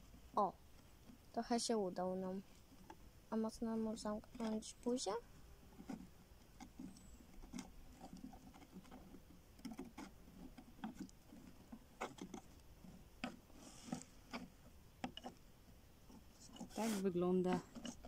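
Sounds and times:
soft rustle: 0.0s - 18.0s.

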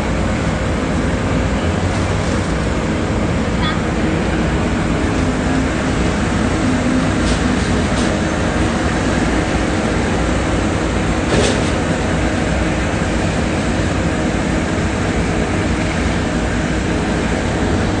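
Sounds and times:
diesel engine idling low rumble: 0.0s - 18.0s.

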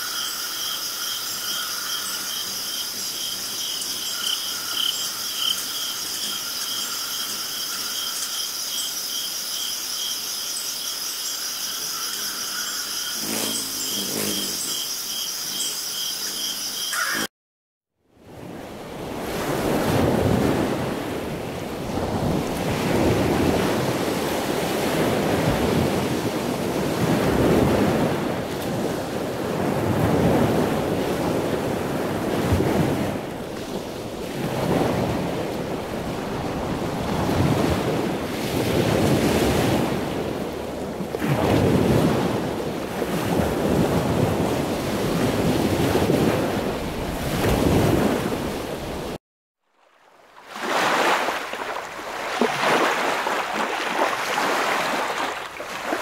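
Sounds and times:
ocean surf on sandy beach: 18.2s - 49.2s, 49.8s - 56.0s.

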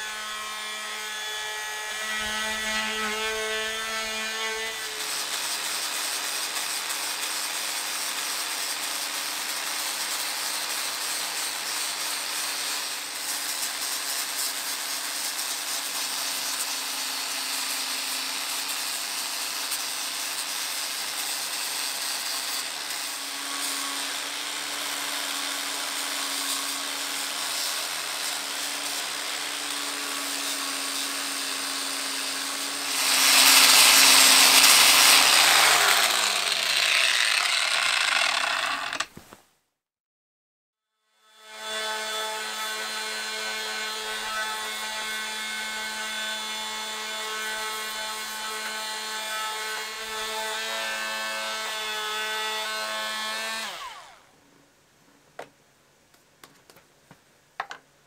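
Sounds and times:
angle grinder grinding metal: 0.0s - 39.2s
multi-tool sanding whine: 0.0s - 39.2s, 41.3s - 54.3s.

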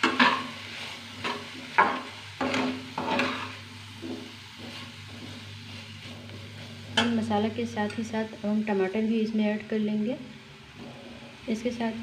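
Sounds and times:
metal spoon scraping a pan: 0.0s - 7.2s
light sizzle: 0.0s - 12.0s.

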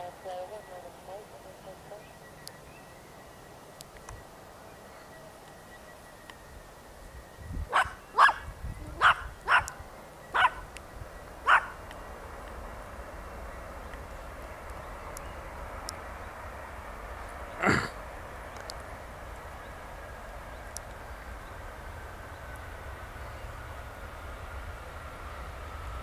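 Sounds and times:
dog barking: 7.7s - 8.4s, 9.0s - 9.8s, 10.4s - 10.6s, 11.4s - 11.8s.

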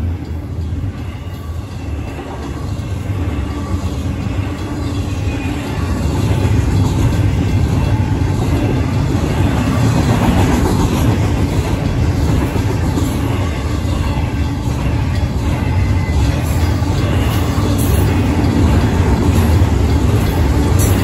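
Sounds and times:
crossing signal bells ringing: 0.0s - 21.0s
train wheels rumbling on rails: 0.0s - 21.0s.

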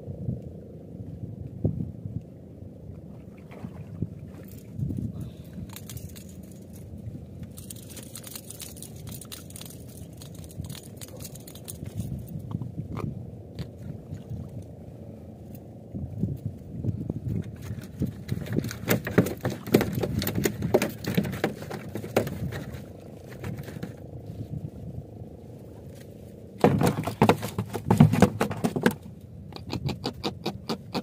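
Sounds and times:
steady low rumble: 0.0s - 18.9s, 21.9s - 26.6s
clicks and knocks of handling fish: 4.4s - 14.7s, 17.2s - 24.1s, 25.9s - 31.0s.

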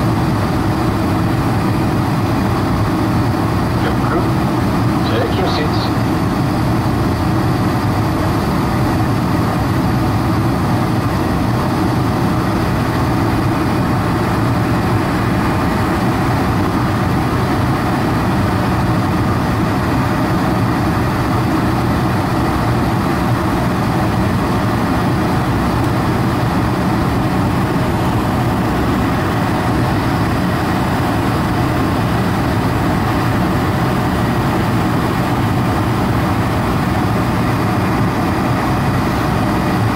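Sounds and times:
jet engine and airflow in cabin: 0.0s - 39.9s.

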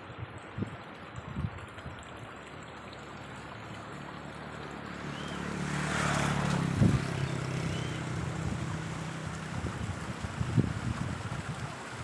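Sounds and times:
wind buffeting microphone: 0.2s - 2.1s, 6.0s - 12.0s
engine passing by: 3.0s - 11.6s.

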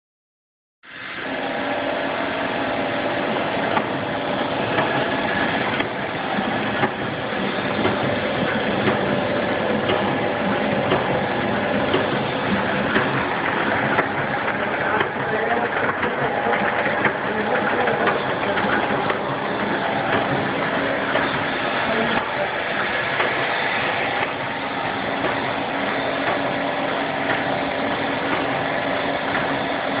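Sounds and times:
machine humming: 0.8s - 30.0s.

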